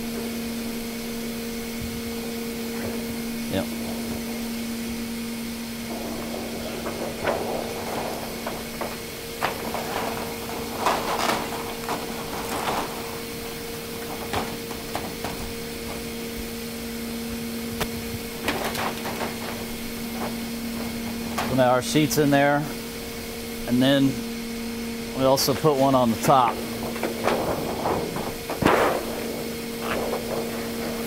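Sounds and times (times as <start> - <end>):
steady machine hum: 0.0 - 31.0
knocks and scrapes of sheet sliding: 5.8 - 16.1, 26.5 - 31.0.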